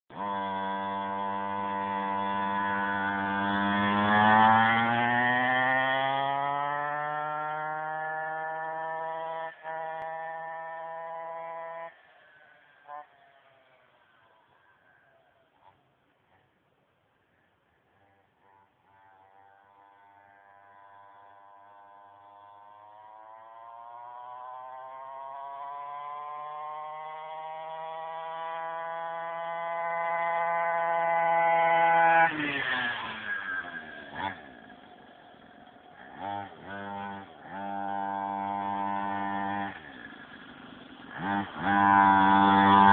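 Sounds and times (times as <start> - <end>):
dirt bike engine buzzing: 0.1 - 14.6, 18.0 - 42.9.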